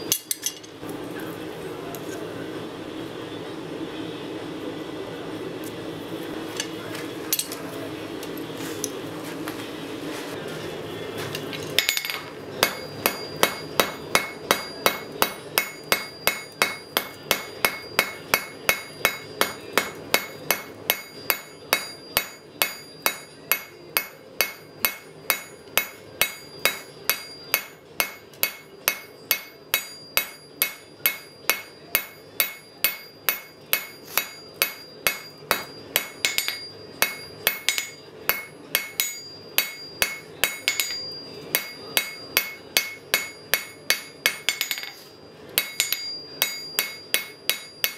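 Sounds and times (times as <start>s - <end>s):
hammer ringing on anvil: 11.8s - 45.0s, 45.6s - 47.9s.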